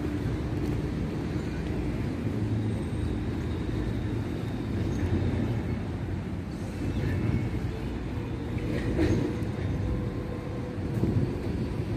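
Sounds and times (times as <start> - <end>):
distant road traffic rumble: 0.0 - 11.9.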